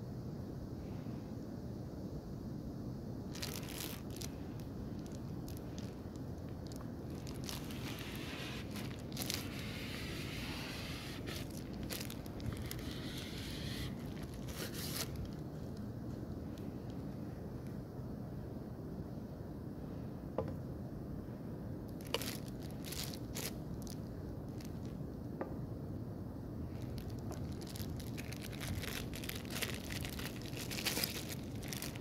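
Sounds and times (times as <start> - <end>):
low background rumble: 0.0 - 32.0
plastic packaging crinkling: 3.3 - 15.9, 22.0 - 25.0, 26.7 - 32.0.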